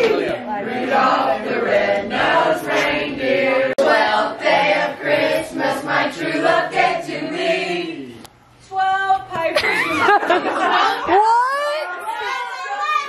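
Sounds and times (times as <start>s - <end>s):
group singing or chanting: 0.0s - 8.2s.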